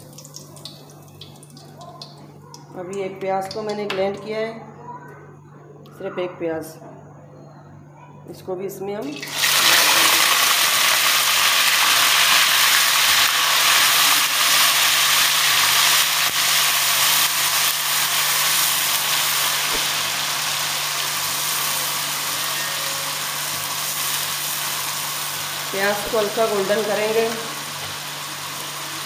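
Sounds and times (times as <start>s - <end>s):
onion sizzling in hot oil: 0.0s - 2.1s, 9.1s - 29.0s.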